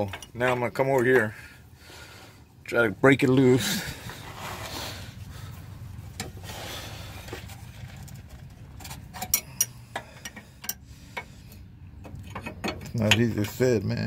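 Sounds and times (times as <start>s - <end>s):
low steady hum: 0.0s - 14.0s
wrenches clinking on metal fittings: 12.0s - 14.0s.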